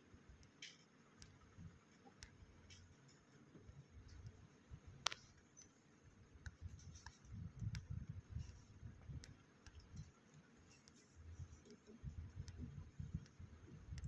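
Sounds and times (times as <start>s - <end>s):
finger rubbing and clicks: 6.4s - 14.0s.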